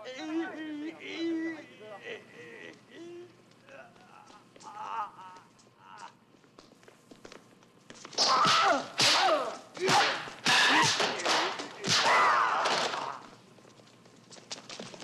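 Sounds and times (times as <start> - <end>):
cries falling in pitch: 2.9 - 6.2.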